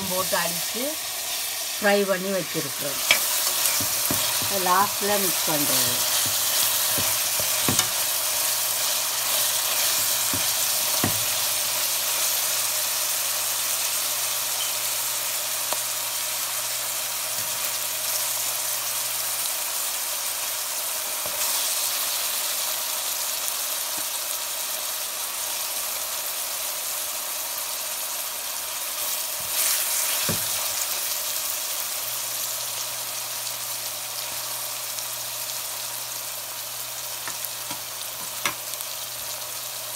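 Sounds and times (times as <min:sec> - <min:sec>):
onions sizzling in oil: 0:00.0 - 0:39.9
spatula knocking metal pan: 0:03.0 - 0:04.6, 0:06.1 - 0:08.0, 0:09.9 - 0:11.4.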